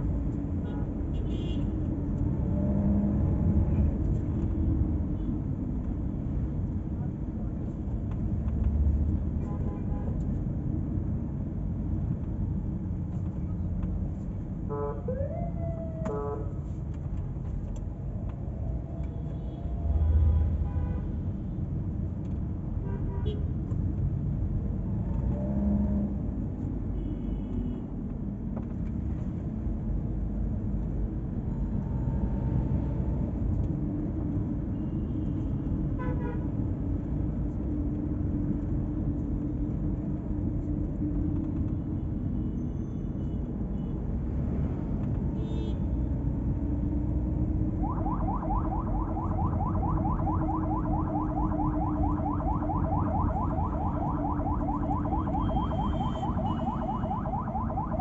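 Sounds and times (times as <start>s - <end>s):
car engine and tyre noise: 0.0s - 58.0s
warbling car alarm tone: 47.8s - 58.0s.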